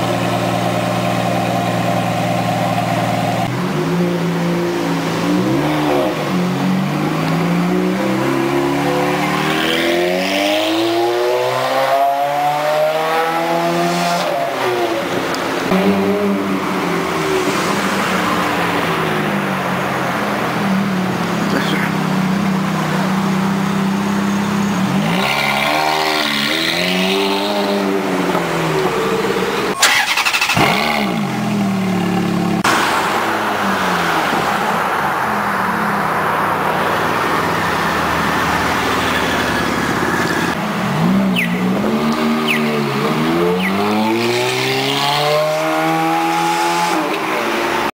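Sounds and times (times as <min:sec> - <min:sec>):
car engine idling and revving: 0:00.0 - 0:48.0.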